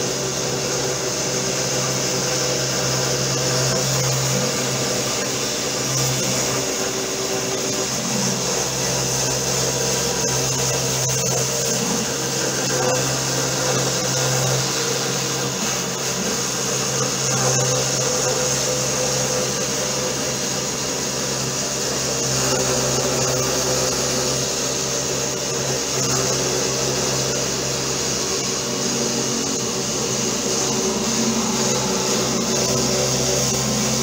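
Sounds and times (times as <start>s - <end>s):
router spindle milling plywood: 0.0s - 34.0s.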